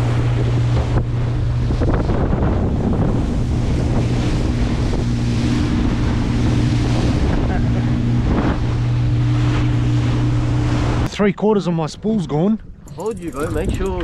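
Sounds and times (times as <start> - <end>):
wind buffeting microphone: 0.0 - 11.1, 12.1 - 14.0
boat engine humming: 0.0 - 14.0
water rushing past hull: 0.0 - 14.0.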